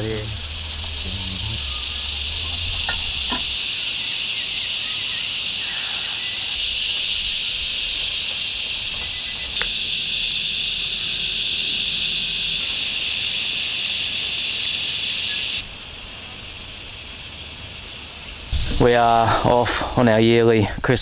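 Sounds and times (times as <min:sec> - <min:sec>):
cicadas droning: 0:00.0 - 0:21.0.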